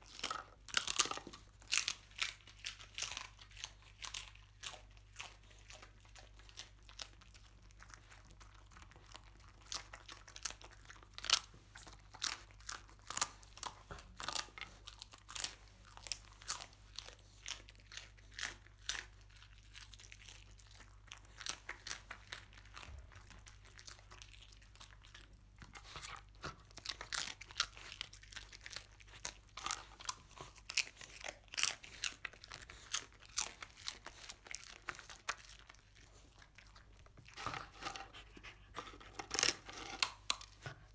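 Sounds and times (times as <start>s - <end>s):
dog crunching hard rice crust: 0.0s - 40.9s.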